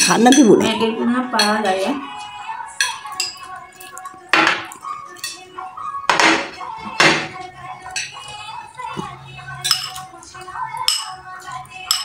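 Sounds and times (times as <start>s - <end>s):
cutlery scraping ceramic plates: 1.4s - 8.3s, 9.5s - 10.2s, 11.8s - 12.0s.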